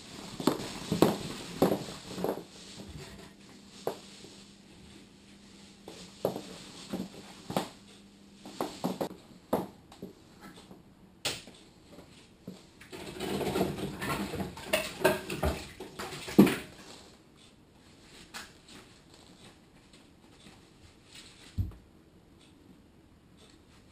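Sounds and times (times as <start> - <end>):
rustling and clatter: 0.0 - 9.2, 12.0 - 17.2
dishes clinking and knocking: 13.0 - 16.7.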